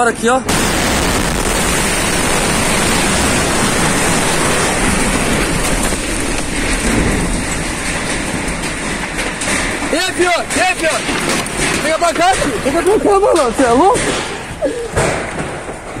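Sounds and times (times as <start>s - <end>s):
fire roaring: 0.5s - 16.0s.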